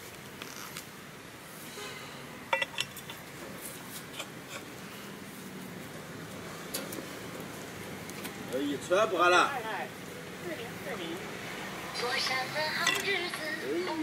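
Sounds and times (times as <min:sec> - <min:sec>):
metal bar clinking on pipe: 0:02.5 - 0:03.2, 0:12.8 - 0:13.2.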